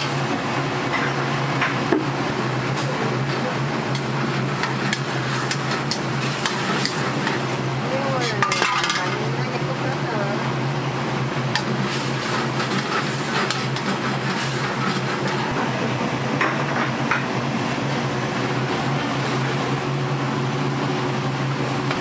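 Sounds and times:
steady low hum: 0.0s - 22.0s
food sizzling: 2.2s - 10.0s, 10.9s - 22.0s
metal utensils clinking: 8.2s - 9.2s.

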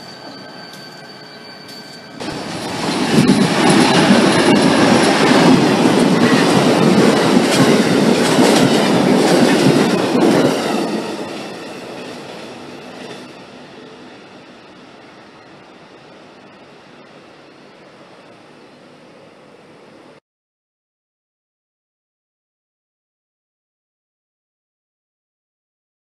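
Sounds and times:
train wheels rushing on rails: 0.0s - 20.2s.

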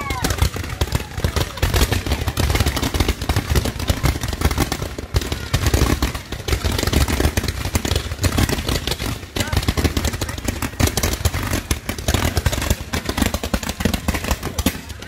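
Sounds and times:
fireworks popping and banging: 0.0s - 15.0s.

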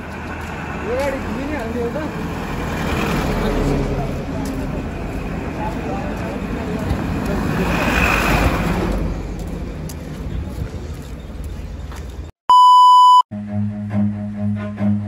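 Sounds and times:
minibus driving past: 0.0s - 11.8s
high-pitched censor bleep: 12.5s - 13.3s.

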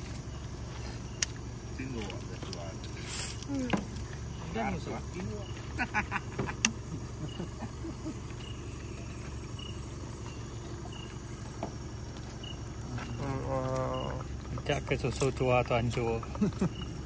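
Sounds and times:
crickets chirping: 0.0s - 17.0s
steady low hum: 0.0s - 17.0s.

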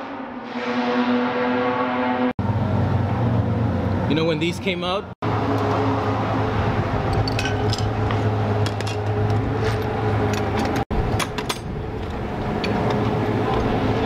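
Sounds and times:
low mechanical hum: 5.3s - 14.0s.

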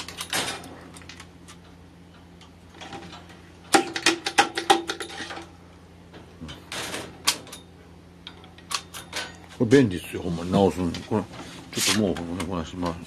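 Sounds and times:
hard objects clinking and clattering: 2.8s - 5.5s.

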